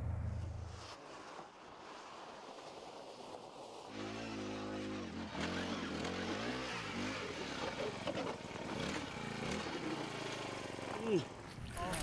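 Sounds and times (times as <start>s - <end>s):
ice auger engine drilling: 3.9s - 11.4s.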